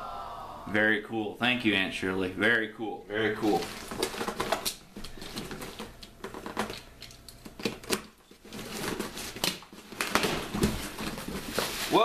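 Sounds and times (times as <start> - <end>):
cardboard scraping: 7.7 - 12.0.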